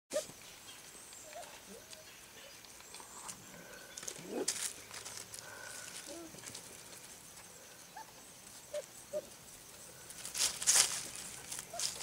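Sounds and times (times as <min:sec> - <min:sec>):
paws on gravel: 0:02.8 - 0:07.5, 0:10.1 - 0:12.0.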